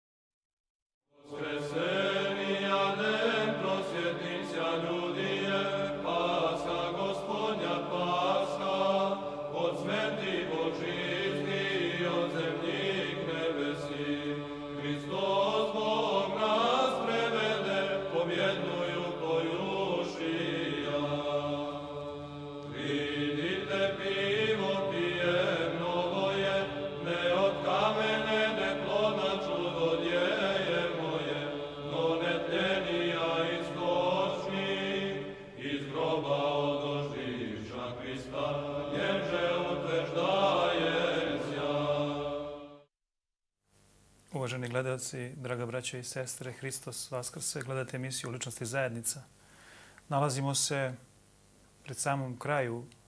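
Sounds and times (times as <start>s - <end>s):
chant-like melody over drone: 1.2s - 42.9s.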